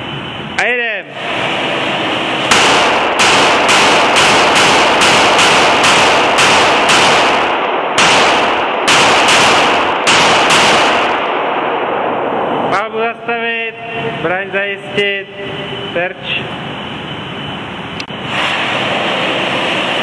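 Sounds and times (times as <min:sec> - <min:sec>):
handgun shots echoing indoors: 0:02.4 - 0:12.0.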